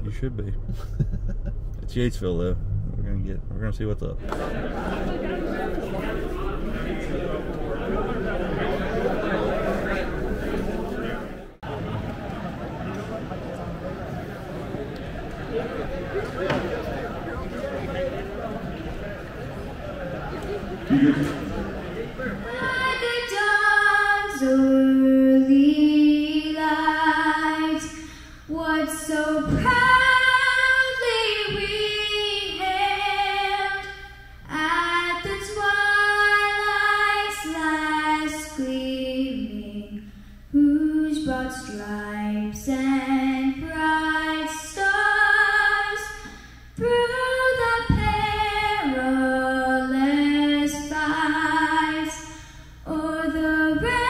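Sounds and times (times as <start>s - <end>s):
woman singing unaccompanied: 22.4s - 46.2s, 46.8s - 54.0s.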